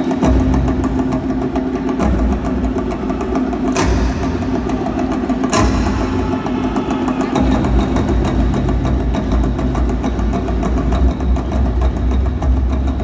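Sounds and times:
fast dense drumbeats: 0:00.0 - 0:13.0.

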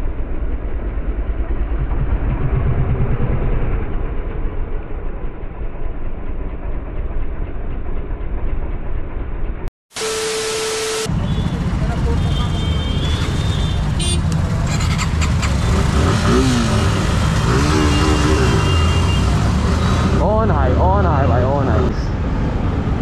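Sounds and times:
motorcycle engine throbbing: 0:00.0 - 0:22.9
static hiss: 0:09.9 - 0:11.1.

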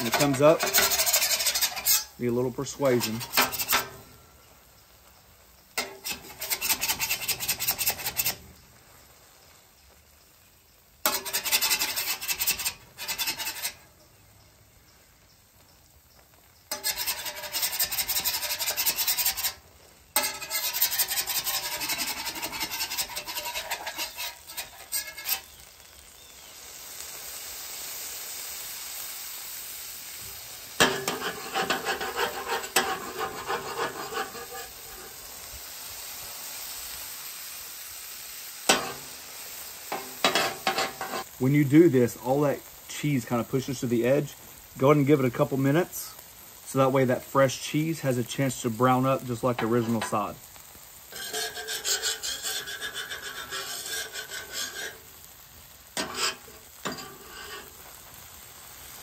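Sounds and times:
metal spatulas scraping griddle: 0:00.0 - 0:04.2, 0:05.8 - 0:08.5, 0:11.0 - 0:13.9, 0:16.7 - 0:19.6, 0:20.2 - 0:25.6, 0:30.8 - 0:35.3, 0:38.7 - 0:41.3, 0:46.8 - 0:55.4, 0:56.0 - 0:58.1
soft sizzle: 0:00.0 - 0:59.0.

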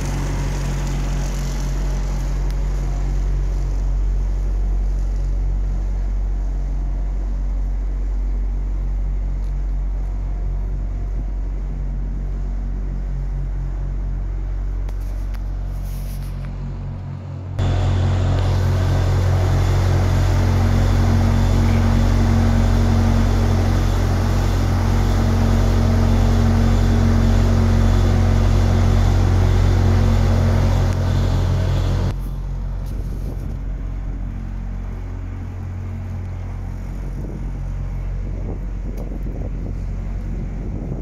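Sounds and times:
engine idling: 0:00.0 - 0:41.0
wind noise on microphone: 0:10.1 - 0:13.0, 0:18.4 - 0:41.0.

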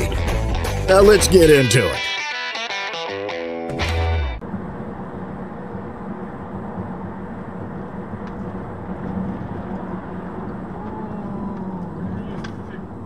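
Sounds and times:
tyre and road noise: 0:03.7 - 0:13.0
car engine drone: 0:04.4 - 0:13.0.

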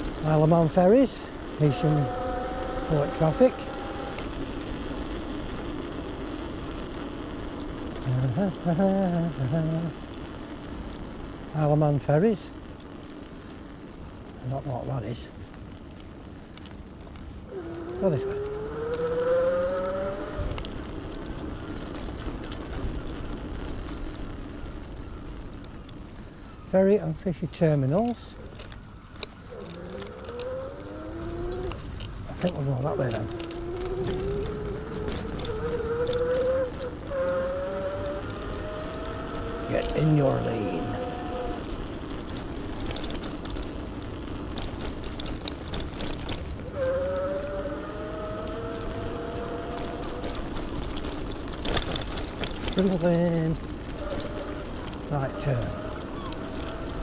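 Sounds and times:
tyre rumble on road: 0:00.0 - 0:57.0
wind buffeting microphone: 0:00.0 - 0:57.0
electric bike motor whining: 0:01.4 - 0:08.0, 0:17.1 - 0:26.4, 0:28.5 - 0:57.0
electric motor whine: 0:01.5 - 0:05.9.

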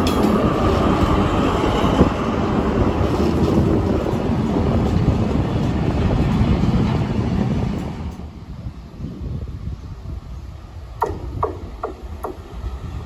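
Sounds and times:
diesel locomotive rumbling past: 0:00.0 - 0:08.9.

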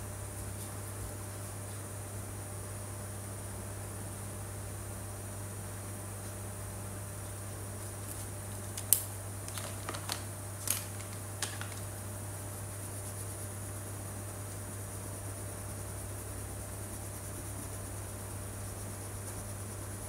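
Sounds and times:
steady low hum: 0:00.0 - 0:20.0
plastic marker clicks and clatters: 0:08.8 - 0:11.9.

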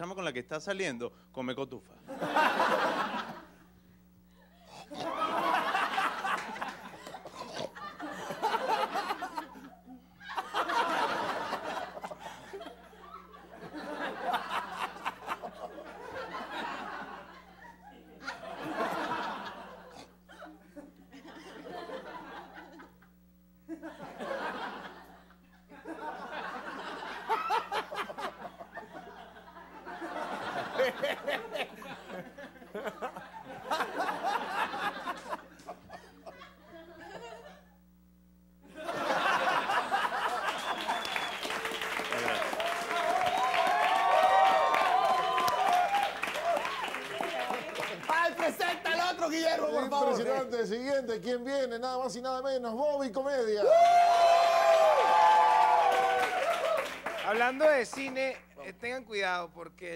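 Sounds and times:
audience laughing: 0:02.0 - 0:03.7, 0:04.9 - 0:23.0, 0:23.7 - 0:37.7, 0:38.6 - 0:50.5.

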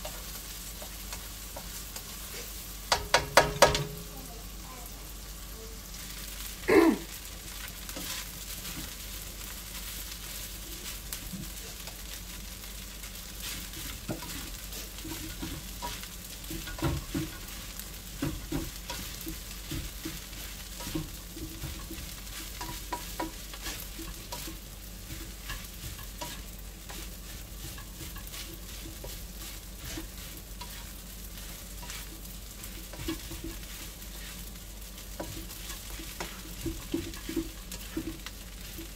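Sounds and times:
spatula scraping and knocking pan: 0:00.0 - 0:04.1, 0:13.3 - 0:38.9
food sizzling in a wok: 0:00.0 - 0:38.9.

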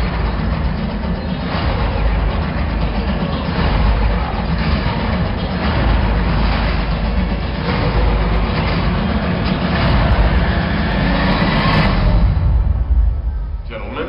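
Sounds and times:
film trailer soundtrack over loudspeakers: 0:00.0 - 0:14.0
heavy low rumble: 0:00.0 - 0:14.0.

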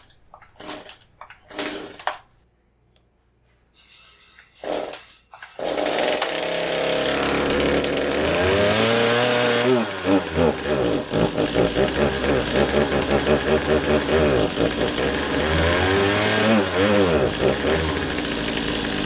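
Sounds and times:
chainsaw engine revving: 0:01.5 - 0:02.1, 0:05.6 - 0:19.0.

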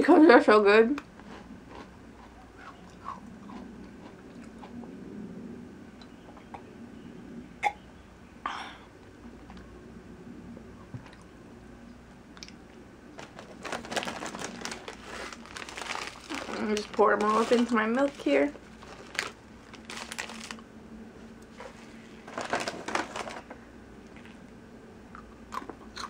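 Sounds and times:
chewing cookie: 0:01.0 - 0:05.0, 0:25.1 - 0:26.0.

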